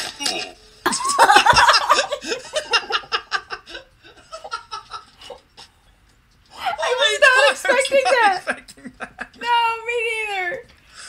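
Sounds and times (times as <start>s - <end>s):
people laughing: 0.9s - 5.4s, 6.8s - 9.7s.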